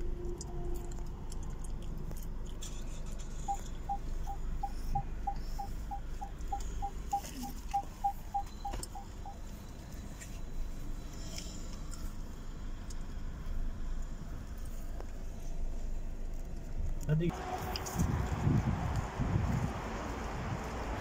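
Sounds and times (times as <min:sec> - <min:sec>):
car engine and tyres rumbling: 0:00.0 - 0:21.0
car cabin beeper beeping: 0:03.4 - 0:09.8.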